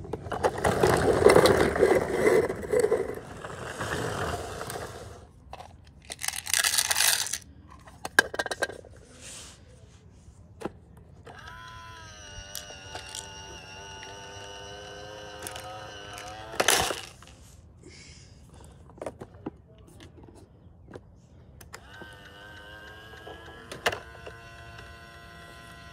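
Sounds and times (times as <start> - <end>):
rustling handling noise: 0.2 - 11.4
plastic toy bins clicking on concrete: 5.5 - 8.8, 12.5 - 13.3.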